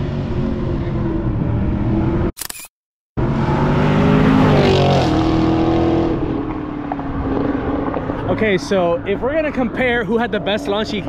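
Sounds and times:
car engine revving through exhaust: 3.2s - 8.5s.

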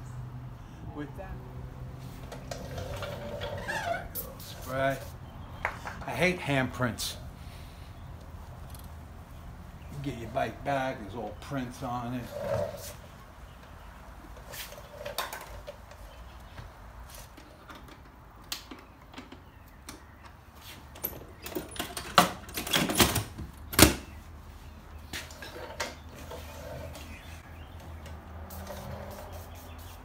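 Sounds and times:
knocks and scrapes: 2.0s - 6.2s, 25.0s - 29.6s
rag rubbing over paint: 28.4s - 30.0s.

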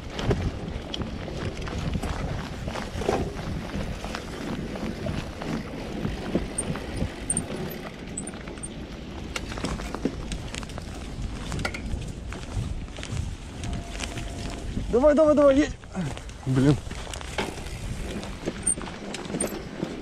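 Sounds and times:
bicycle tyres rumbling on dirt: 0.0s - 20.0s
bike rattling over bumps: 16.9s - 20.0s.

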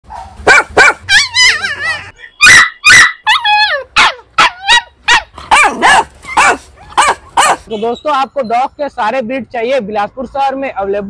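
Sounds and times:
dogs barking and yelping: 0.1s - 7.7s.

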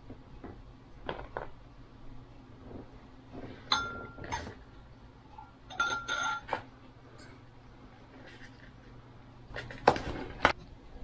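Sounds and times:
dish clinking and knocking: 3.7s - 4.6s, 5.7s - 6.6s.

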